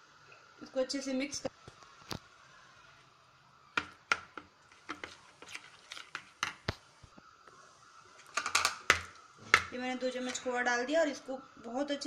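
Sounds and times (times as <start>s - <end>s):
spoon scraping a plastic bowl: 4.7s - 6.5s.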